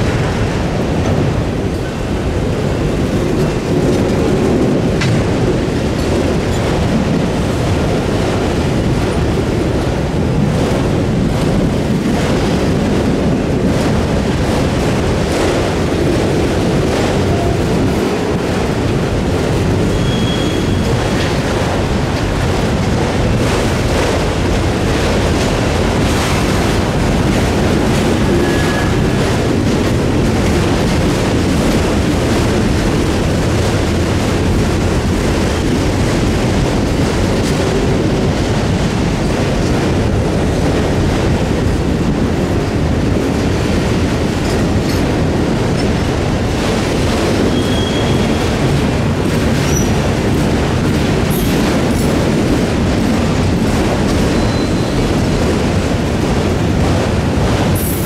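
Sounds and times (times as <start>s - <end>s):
train wheels rumbling on rail: 0.0s - 58.0s
wheel clicking on rail: 0.2s - 58.0s
high wheel squeals: 19.9s - 21.0s, 47.5s - 48.4s.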